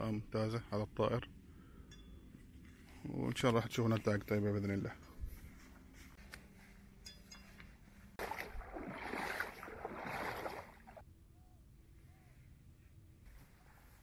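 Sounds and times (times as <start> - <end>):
footsteps splashing through water: 8.2 - 11.0.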